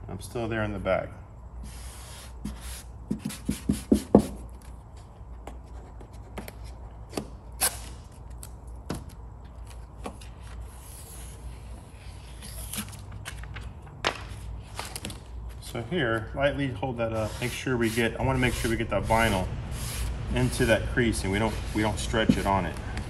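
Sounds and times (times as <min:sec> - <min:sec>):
squeegee scraping film: 0:17.0 - 0:23.0.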